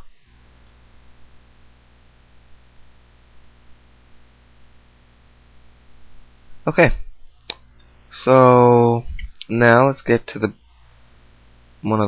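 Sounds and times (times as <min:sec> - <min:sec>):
faint electrical hum: 0:00.0 - 0:12.0
low hiss: 0:00.0 - 0:12.0.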